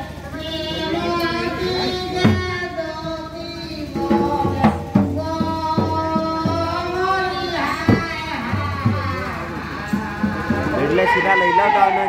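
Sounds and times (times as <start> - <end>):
hand drums beating: 3.9 - 11.2.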